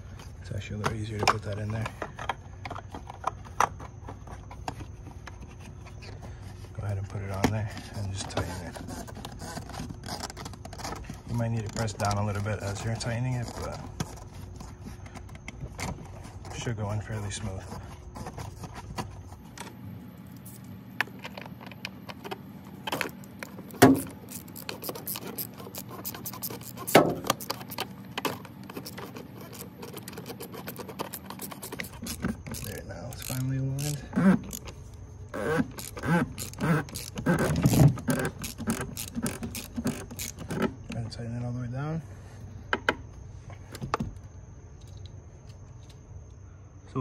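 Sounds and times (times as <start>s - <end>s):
cap clicks and scrapes: 20.4s - 34.8s, 35.4s - 40.8s.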